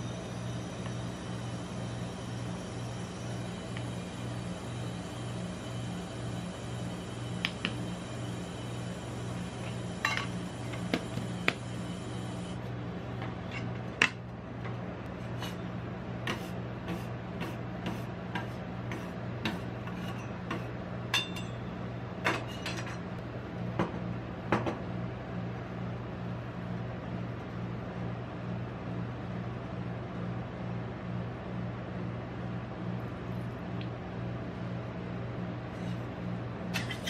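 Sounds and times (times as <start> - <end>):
machine humming: 0.0 - 17.8.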